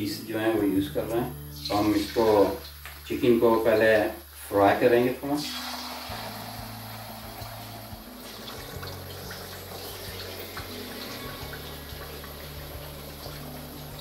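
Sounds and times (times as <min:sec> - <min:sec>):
chicken sizzling in hot oil: 0:01.6 - 0:14.0.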